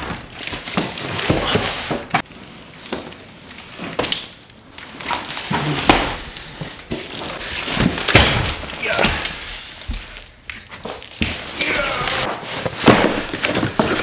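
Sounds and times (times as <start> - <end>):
boxes scraping and rustling: 0.0 - 14.0
cardboard boxes thudding on tile: 5.5 - 14.0.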